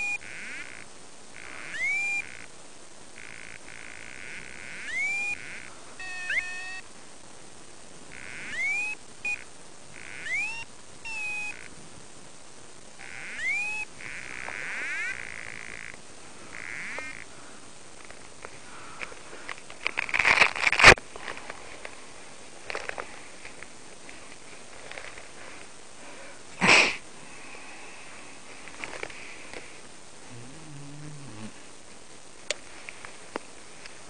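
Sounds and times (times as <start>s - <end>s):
electronic chirps: 0.0s - 0.8s, 1.4s - 2.5s, 3.2s - 6.9s, 8.1s - 11.7s, 13.0s - 17.2s.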